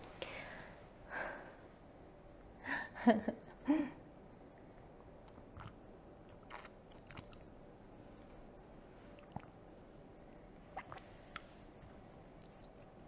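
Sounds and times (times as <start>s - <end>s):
sipping through a straw: 10.8s - 11.5s.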